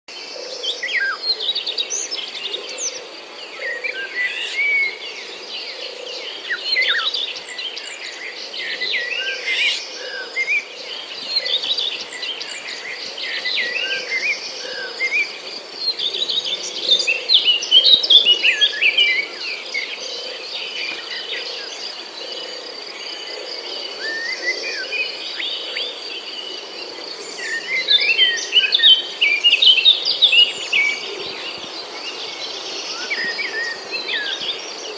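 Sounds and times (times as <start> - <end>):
birds chirping and calling: 0.3 - 34.9.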